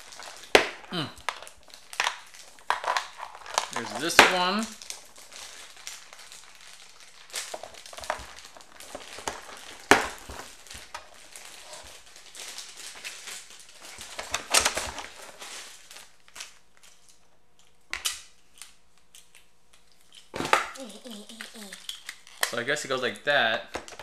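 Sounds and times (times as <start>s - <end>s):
plastic toy parts clicking: 21.2s - 22.5s.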